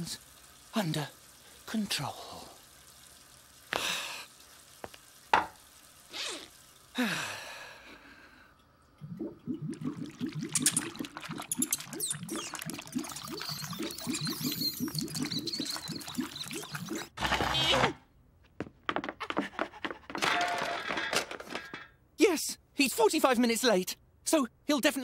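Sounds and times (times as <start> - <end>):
downward sliding gurgles: 9.0 - 17.8.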